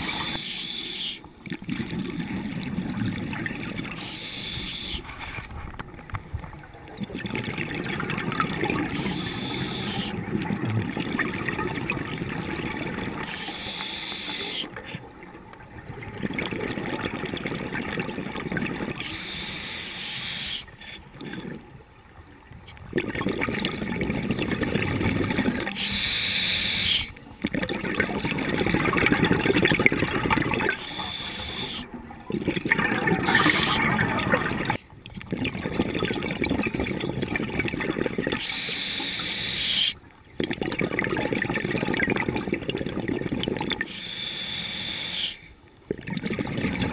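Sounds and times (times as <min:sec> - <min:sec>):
diver breathing through regulator: 0:00.0 - 0:01.3, 0:04.0 - 0:05.3, 0:08.9 - 0:10.2, 0:13.2 - 0:14.8, 0:19.0 - 0:21.0, 0:25.6 - 0:27.6, 0:30.6 - 0:31.9, 0:38.4 - 0:40.0, 0:43.8 - 0:45.5.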